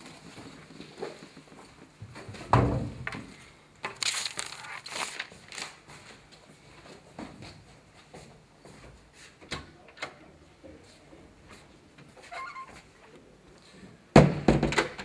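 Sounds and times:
rustling and scraping movement: 3.2s - 9.4s.

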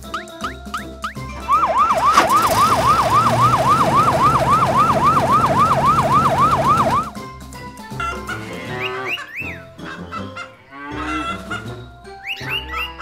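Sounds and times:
fire truck siren yelping: 1.4s - 7.2s.

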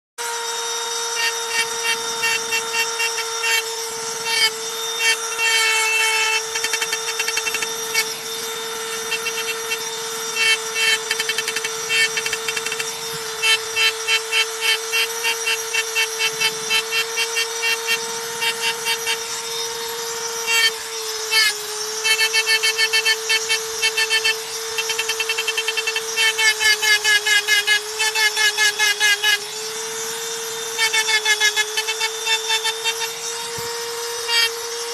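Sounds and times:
rotary tool whining: 0.2s - 34.9s
bit scratching stone: 1.1s - 34.9s.

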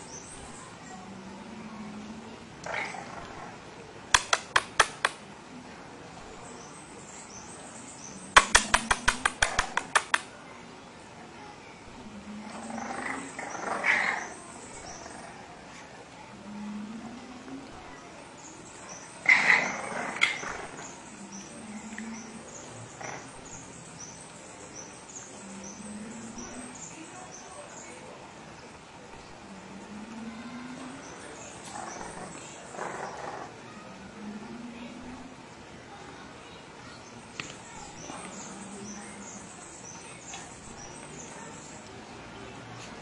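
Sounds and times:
sharp taps: 4.2s - 5.2s, 8.4s - 10.3s.

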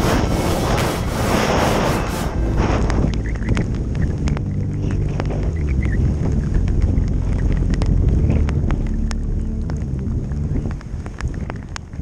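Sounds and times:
skis running on snow: 0.0s - 3.2s
wind on microphone: 0.0s - 12.0s
sharp clicks: 2.7s - 11.9s.

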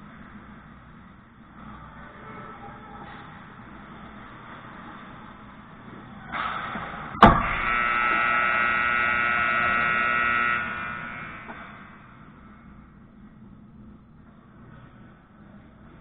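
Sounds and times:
steady buzzing tone: 6.8s - 14.0s.

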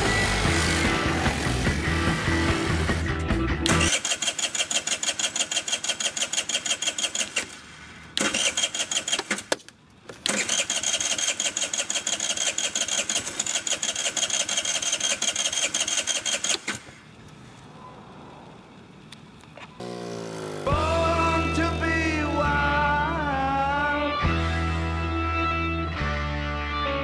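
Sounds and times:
scooter engine cranking: 0.0s - 17.2s.

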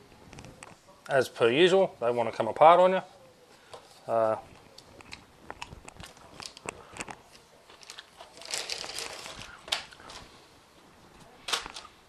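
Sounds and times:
plastic packet crinkling: 4.8s - 10.3s.

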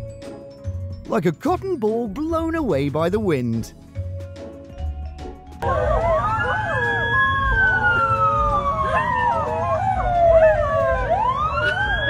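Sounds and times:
dogs howling: 5.6s - 12.0s
siren wailing: 5.6s - 12.0s.

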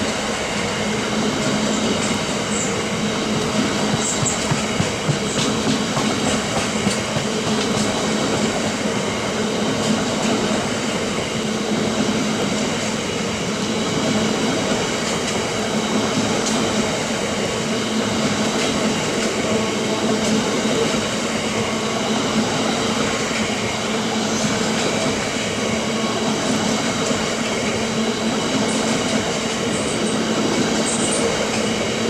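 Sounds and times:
freight train wheels rumbling on rail: 0.0s - 32.0s.

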